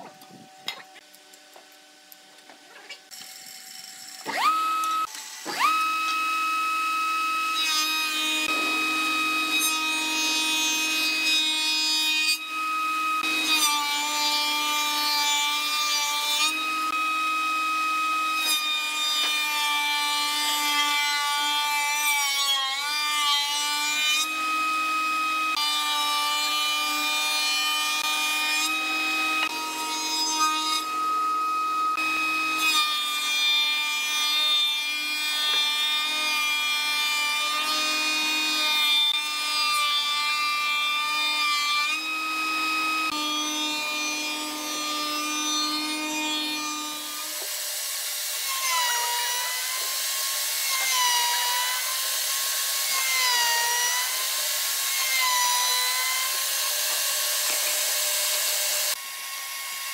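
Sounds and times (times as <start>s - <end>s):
wood cutting rasp: 41.2s - 59.0s.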